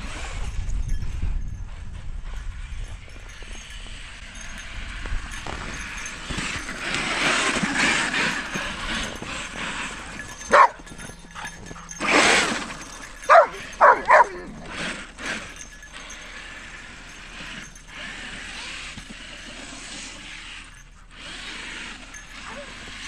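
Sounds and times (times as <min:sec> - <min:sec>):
dog barking in sharp yips: 0:10.5 - 0:10.8, 0:13.2 - 0:14.5.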